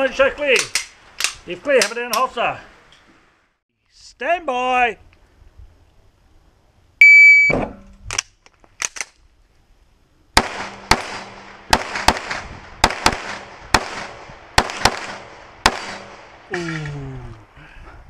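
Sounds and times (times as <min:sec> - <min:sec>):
pistol handling clacks: 0:00.6 - 0:02.3
electronic shot timer beep: 0:07.0 - 0:07.6
pistol shots: 0:10.4 - 0:16.4.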